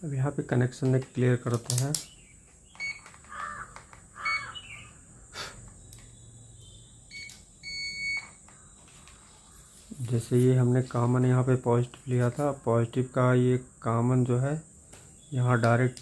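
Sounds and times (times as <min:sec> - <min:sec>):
multimeter beeping: 0:02.7 - 0:03.2, 0:04.2 - 0:05.0, 0:05.7 - 0:09.2
click: 0:05.9 - 0:06.1.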